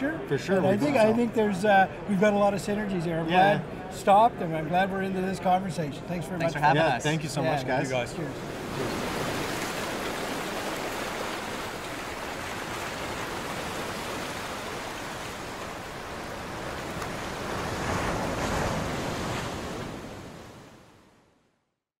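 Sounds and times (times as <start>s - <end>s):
ocean surf rushing: 6.5s - 21.2s.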